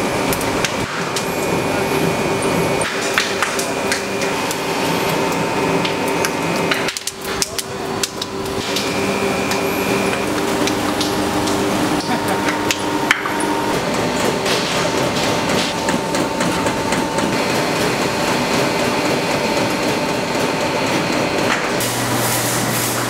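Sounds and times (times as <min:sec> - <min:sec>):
machinery humming: 0:00.0 - 0:23.0.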